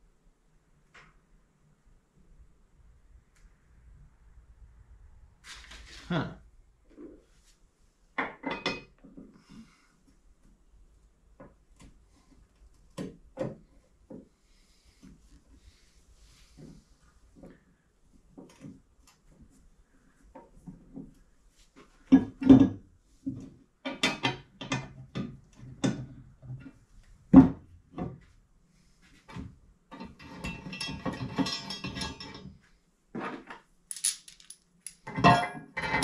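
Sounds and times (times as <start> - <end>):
metal parts knocking and clinking: 30.2 - 32.4, 33.9 - 36.0.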